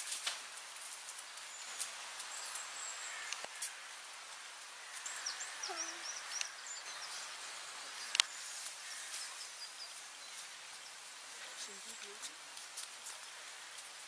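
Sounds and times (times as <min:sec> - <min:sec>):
high bird chirps: 0:05.0 - 0:07.3.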